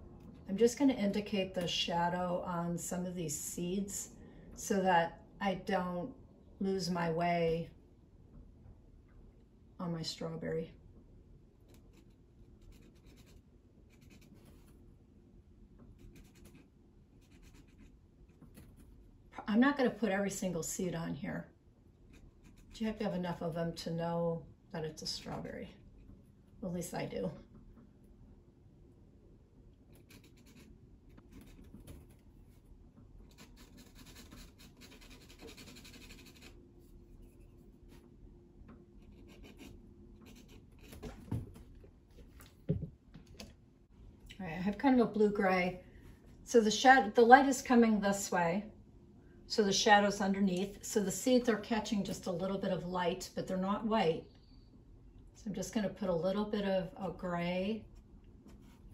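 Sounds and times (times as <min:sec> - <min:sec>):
pencil scratching on paper: 0:11.7 - 0:14.7, 0:16.0 - 0:19.0, 0:22.1 - 0:23.0, 0:29.9 - 0:38.0, 0:39.0 - 0:41.1.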